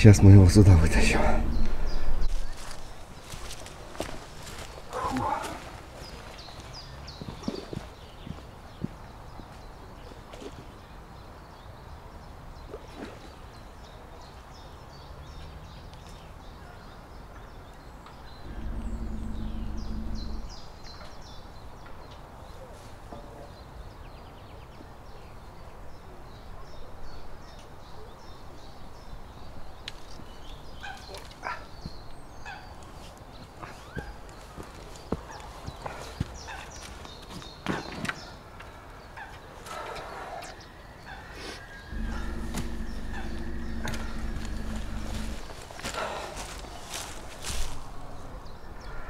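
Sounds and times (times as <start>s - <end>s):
small birds chirping: 0.0s - 22.7s, 23.4s - 49.0s
low rumble: 0.5s - 2.8s, 18.5s - 20.7s, 42.0s - 45.8s.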